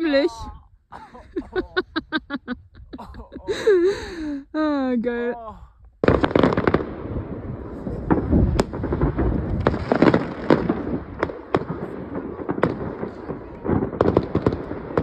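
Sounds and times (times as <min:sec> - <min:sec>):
distant fireworks crackling: 0:06.0 - 0:15.0
loud firework cracks: 0:06.0 - 0:15.0.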